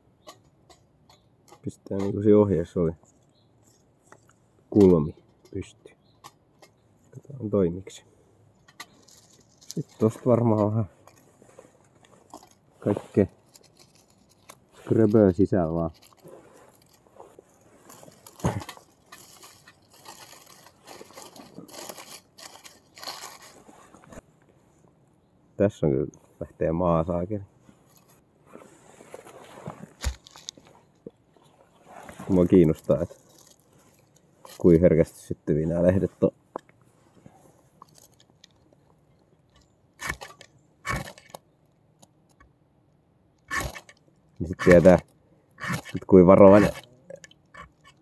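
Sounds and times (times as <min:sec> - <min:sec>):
dry leaves crunching: 0:08.9 - 0:24.2, 0:27.8 - 0:30.7, 0:31.7 - 0:34.8
ferro rod scraping: 0:43.5 - 0:43.9, 0:45.6 - 0:48.0.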